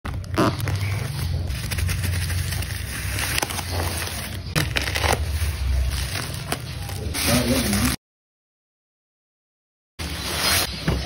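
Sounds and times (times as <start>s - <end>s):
fingers crinkling bubble wrap: 0.1s - 8.0s.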